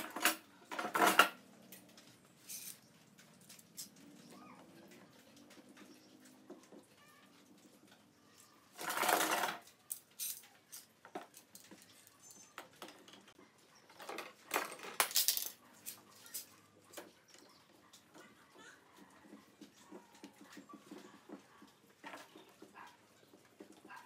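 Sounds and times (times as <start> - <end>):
metallic clamp clicks and clinks: 8.9 - 12.6.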